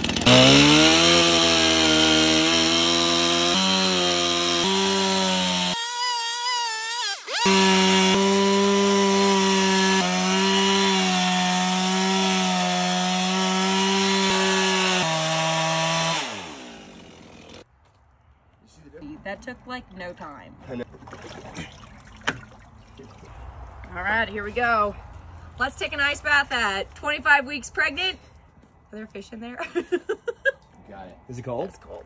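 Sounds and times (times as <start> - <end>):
chainsaw cutting ice: 0.0 - 17.6.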